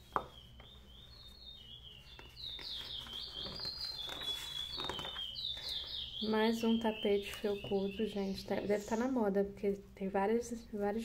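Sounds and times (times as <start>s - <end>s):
songbird chirping: 0.0s - 9.3s
magazine page turning: 2.5s - 5.3s.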